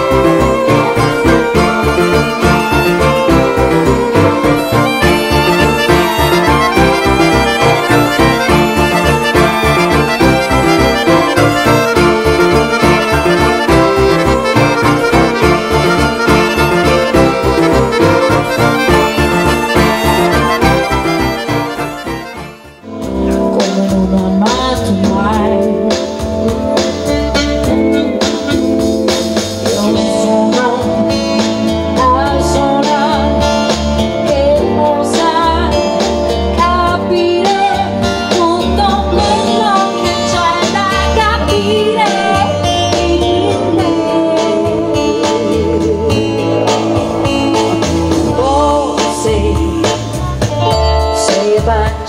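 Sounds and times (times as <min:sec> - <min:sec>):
electronic keyboard with beat: 0:00.0 - 0:38.5
woman singing pop song: 0:23.4 - 0:29.0, 0:29.6 - 0:52.0.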